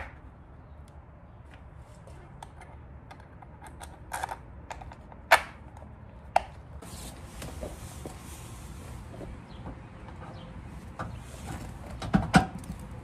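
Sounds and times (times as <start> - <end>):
metal and plastic parts clicking: 2.4 - 5.8.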